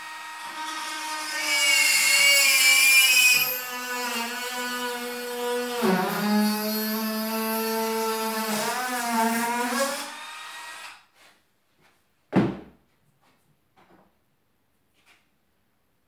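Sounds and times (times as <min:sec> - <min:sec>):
electric drill boring into bone: 0:00.0 - 0:11.0.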